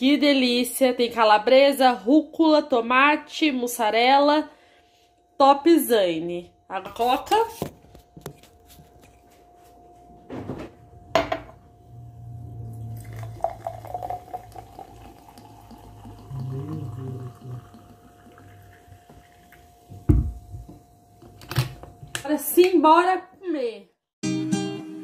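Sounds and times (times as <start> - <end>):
cola pouring and fizzing: 12.6 - 20.1
low thump: 20.0 - 20.7.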